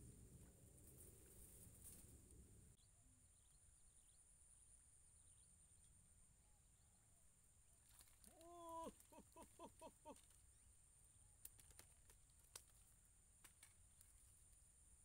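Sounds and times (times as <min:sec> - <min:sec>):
faint chirps: 0:02.7 - 0:07.3.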